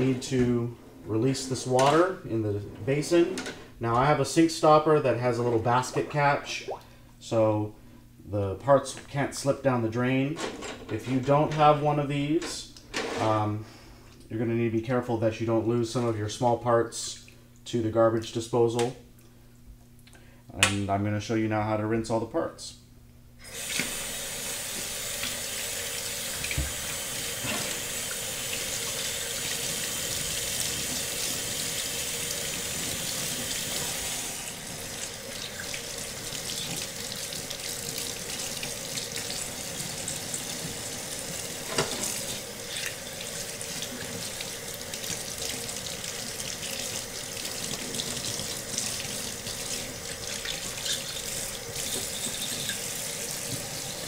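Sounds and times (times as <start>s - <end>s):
faucet water splashing in sink: 23.4s - 54.0s.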